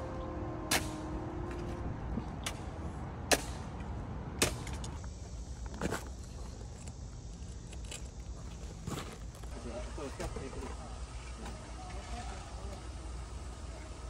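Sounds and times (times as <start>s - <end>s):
low steady rumble: 0.0s - 9.6s.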